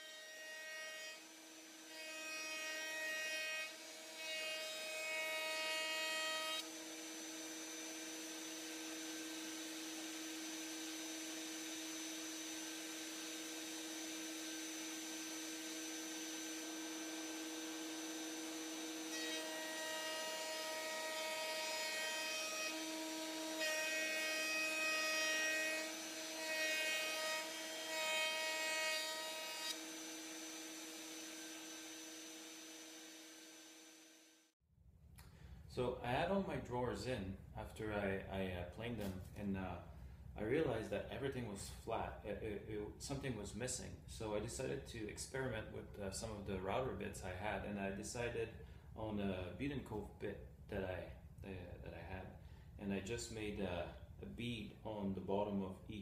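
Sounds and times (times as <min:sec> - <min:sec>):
router cutting wood: 0:00.0 - 0:34.4
router whining: 0:06.6 - 0:34.4.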